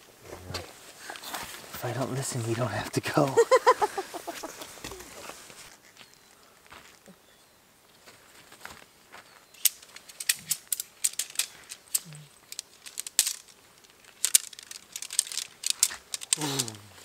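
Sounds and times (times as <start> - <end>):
tent pole sections clicking: 9.5 - 17.0.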